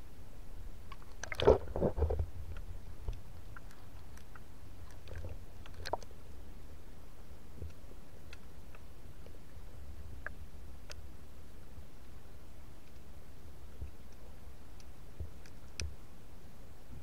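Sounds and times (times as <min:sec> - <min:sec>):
sharp underwater clicks: 0:00.8 - 0:06.1, 0:13.8 - 0:16.0.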